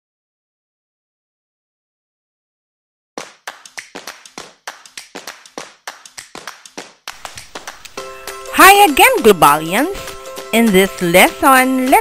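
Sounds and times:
rapid hand claps: 0:03.2 - 0:08.4
quiet music: 0:07.2 - 0:12.0.

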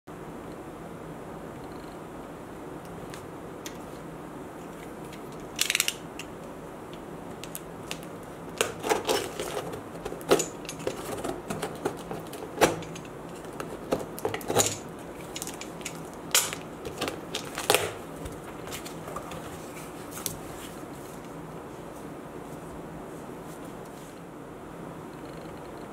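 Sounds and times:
knife cutting packing tape: 0:16.4 - 0:18.0.

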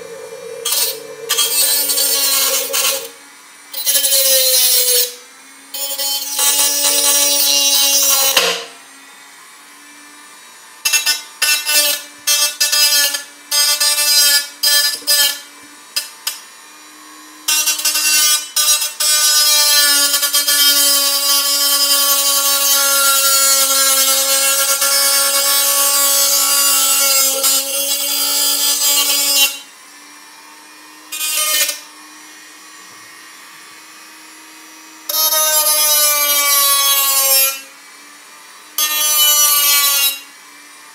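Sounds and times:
rotary tool motor hum: 0:00.0 - 0:05.2, 0:18.7 - 0:29.6
rotary tool grinding metal can: 0:00.0 - 0:08.7, 0:17.5 - 0:29.7, 0:31.1 - 0:31.9, 0:35.1 - 0:37.8.

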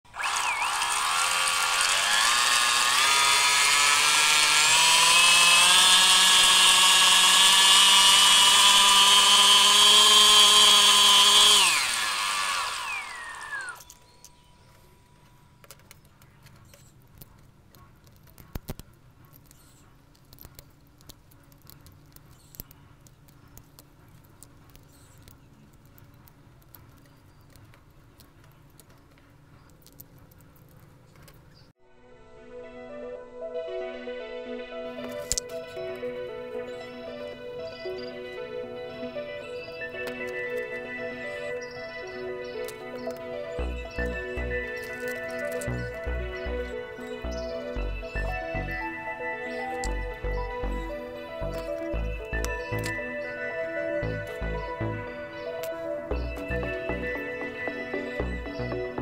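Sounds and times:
electric motor high whine: 0:00.1 - 0:16.0, 0:34.8 - 0:59.0
plastic parts tapping and clicking: 0:13.7 - 0:31.6, 0:44.7 - 0:46.1.

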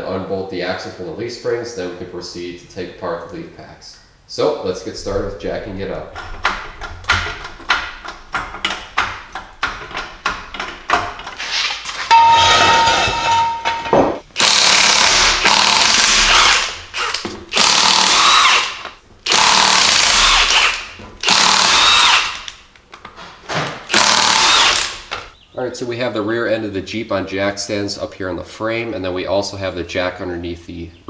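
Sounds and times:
impact wrench hammering: 0:06.1 - 0:11.4, 0:12.1 - 0:22.6, 0:23.9 - 0:25.2.

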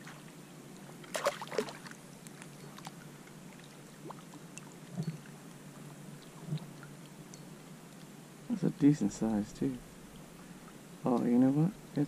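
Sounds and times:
small water sounds: 0:00.0 - 0:12.0.

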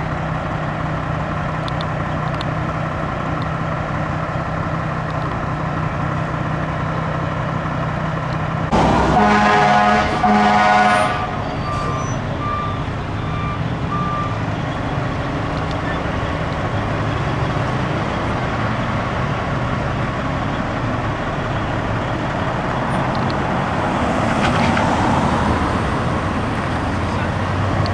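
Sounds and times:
truck engines idling: 0:00.0 - 0:27.9
vehicle driving past: 0:08.7 - 0:12.2
reversing alarm beeping: 0:08.7 - 0:15.2.

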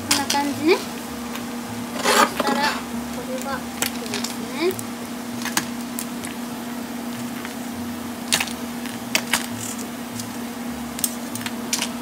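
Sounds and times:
oil sizzling in a frying pan: 0:00.0 - 0:12.0
steady hum: 0:00.0 - 0:12.0
metal tongs clicking: 0:11.0 - 0:12.0.

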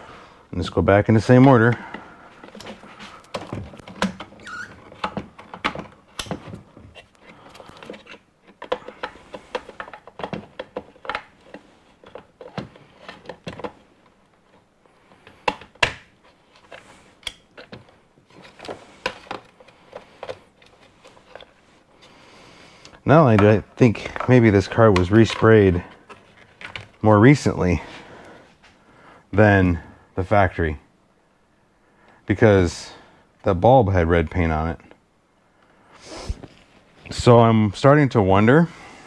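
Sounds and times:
wiring being handled: 0:01.3 - 0:21.7.

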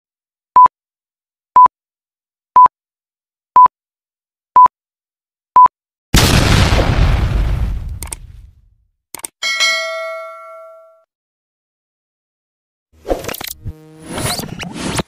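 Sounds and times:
high electronic beeps: 0:13.2 - 0:14.6.

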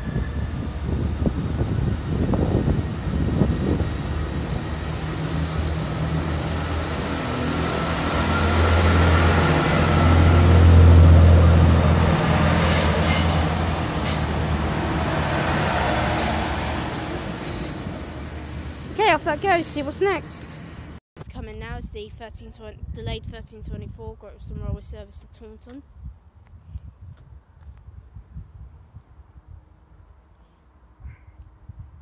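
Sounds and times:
train diesel engines droning: 0:00.0 - 0:21.0
sharp clicks of passing train: 0:11.9 - 0:18.9.

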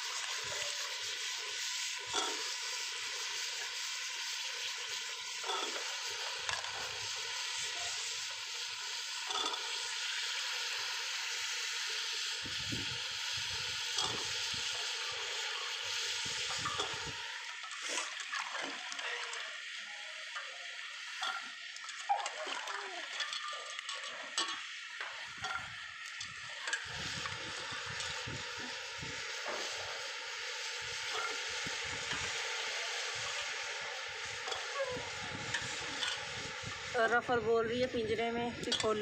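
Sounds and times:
food sizzling in ghee: 0:00.0 - 0:39.0.

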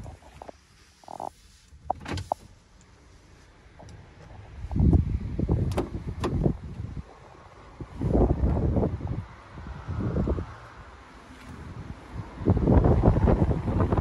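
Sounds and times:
wind on microphone: 0:04.4 - 0:14.0.

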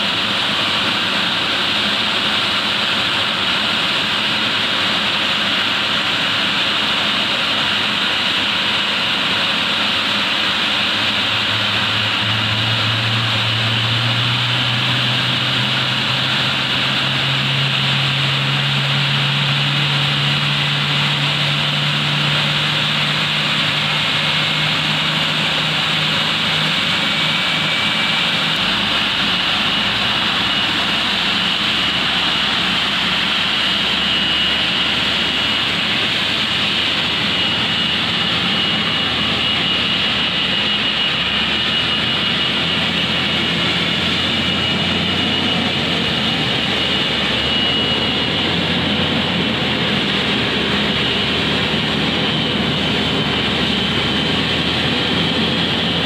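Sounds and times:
jet turbine rush and whine: 0:00.0 - 0:56.0
low engine hum: 0:00.0 - 0:56.0.

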